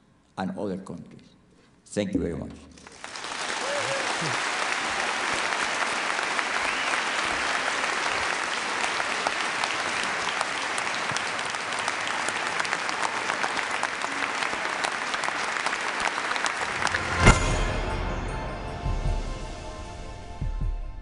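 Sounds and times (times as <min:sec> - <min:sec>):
audience applauding: 0:02.8 - 0:18.0.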